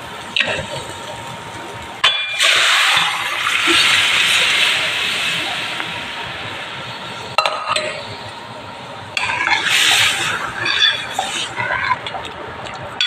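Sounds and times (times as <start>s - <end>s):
metal ladle scraping pan: 9.2s - 12.0s.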